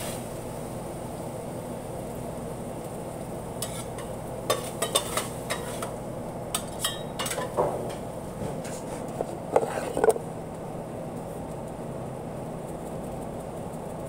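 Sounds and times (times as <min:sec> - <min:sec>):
metal spatulas scraping a griddle: 0:03.6 - 0:06.0, 0:06.6 - 0:10.2.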